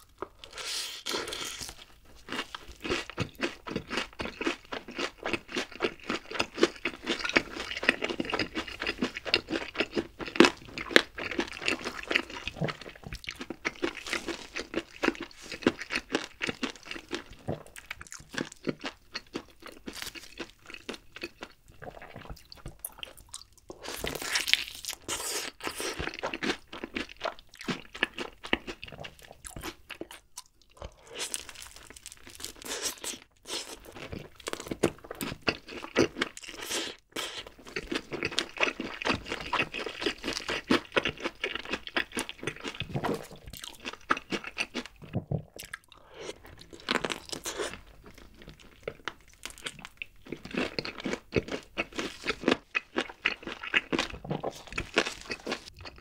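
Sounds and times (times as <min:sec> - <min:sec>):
crunching fried chicken: 0:00.0 - 0:56.0.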